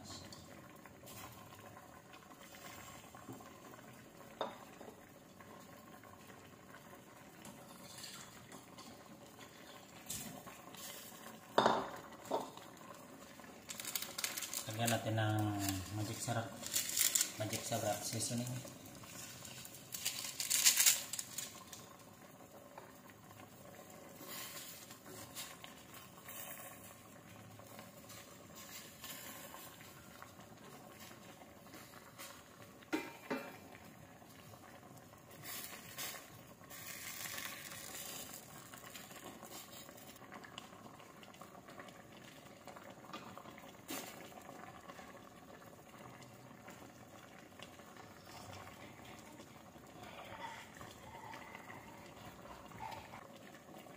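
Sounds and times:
broth bubbling in a pot: 0.0s - 53.9s
wooden spoon scraping a pot: 7.6s - 11.2s.

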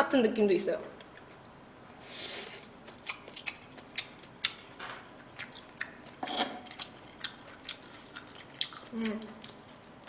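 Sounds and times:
close chewing of rice: 2.8s - 10.0s.

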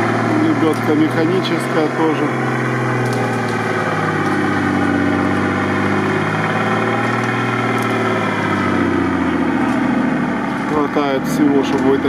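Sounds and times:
car engine running steadily: 0.0s - 12.0s.

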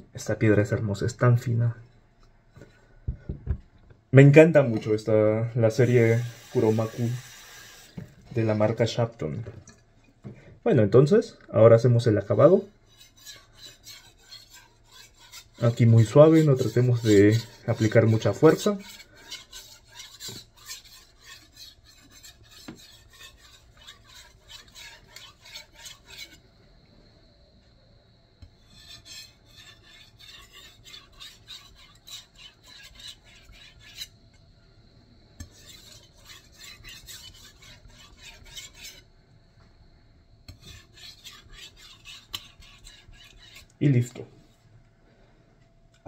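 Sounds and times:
knife scraping on whetstone: 12.8s - 26.4s, 28.6s - 34.2s, 35.4s - 39.1s, 40.5s - 43.8s.

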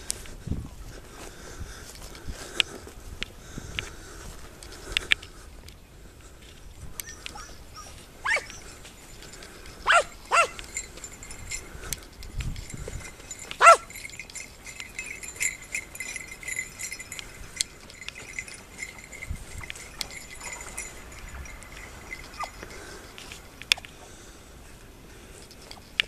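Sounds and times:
hound barking: 7.2s - 8.7s, 9.8s - 10.7s, 13.5s - 13.9s.

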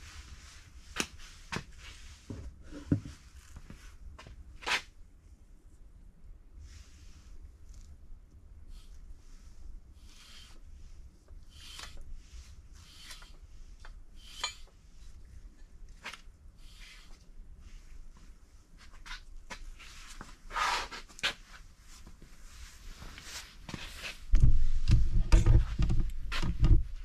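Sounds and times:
soft rubs and scrapes on metal: 0.0s - 4.1s, 8.7s - 26.1s.

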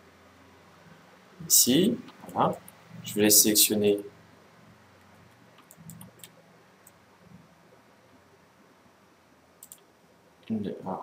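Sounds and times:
low steady hum: 0.0s - 11.0s
computer mouse clicks: 5.0s - 7.0s, 9.6s - 9.9s.

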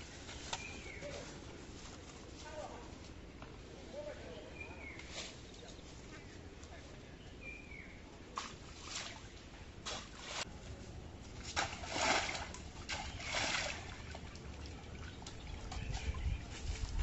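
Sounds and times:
feet splashing through muddy water: 11.4s - 17.0s.

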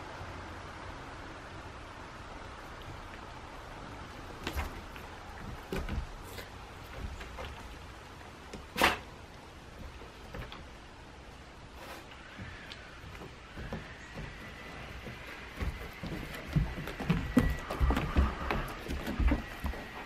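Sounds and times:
dogs stepping on wooden roof: 2.8s - 10.9s, 12.3s - 20.0s.

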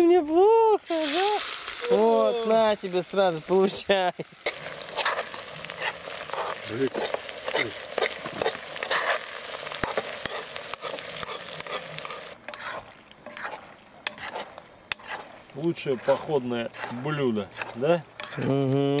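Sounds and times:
food sizzling in a pan: 0.9s - 19.0s
utensil clicking and scraping: 15.9s - 18.8s.

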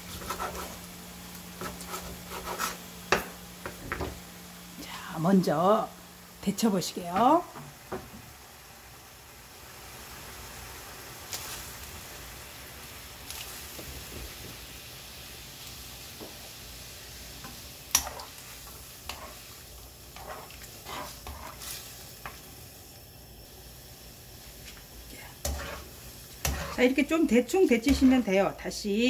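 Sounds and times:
water boiling in a pan: 0.0s - 29.0s.

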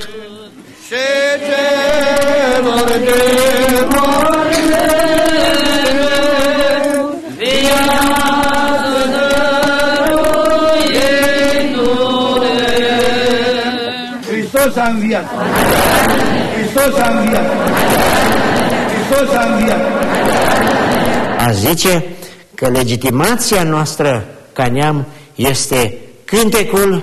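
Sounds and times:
voices singing a slow chant: 0.0s - 21.4s.

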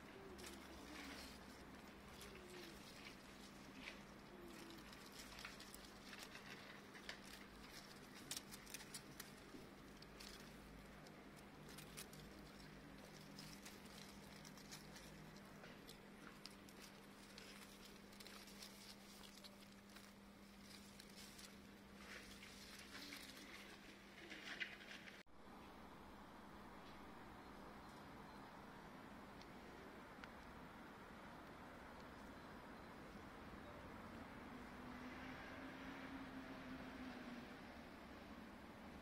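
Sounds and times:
dry vegetation rustling and ticking: 0.0s - 25.2s, 29.4s - 32.9s
low steady hum: 0.0s - 39.0s.

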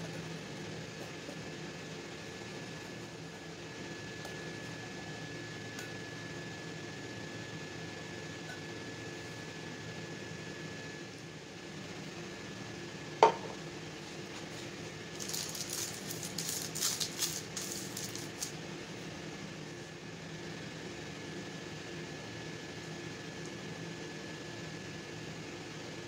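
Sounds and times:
low background hum: 0.0s - 26.0s
cookware knocking on work surface: 13.2s - 13.5s
paper crinkling and rustling: 14.3s - 18.6s.

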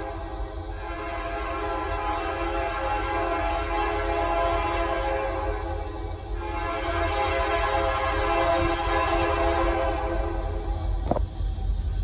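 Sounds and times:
locomotive air horn chord: 0.0s - 10.8s.

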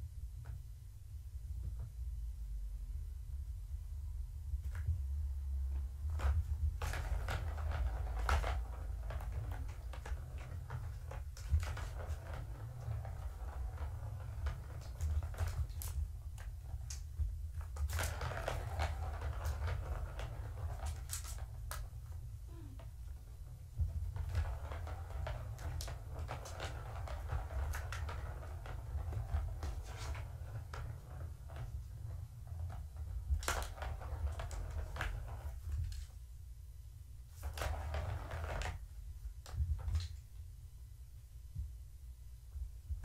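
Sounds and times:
steady low hum: 0.0s - 7.3s
ball rattling in plastic track: 4.6s - 36.2s, 37.3s - 40.4s.

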